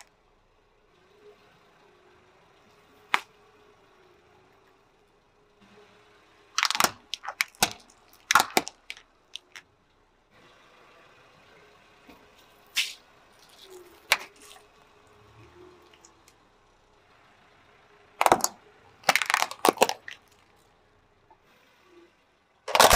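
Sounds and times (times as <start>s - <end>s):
hard plastic cracking under tyre: 6.6s - 9.6s, 12.8s - 14.8s, 18.2s - 20.6s, 22.7s - 22.9s.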